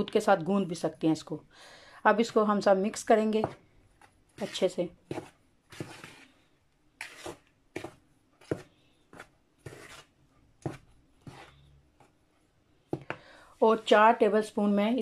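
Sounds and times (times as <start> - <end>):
spoon stirring flour in a bowl: 2.1 - 14.0.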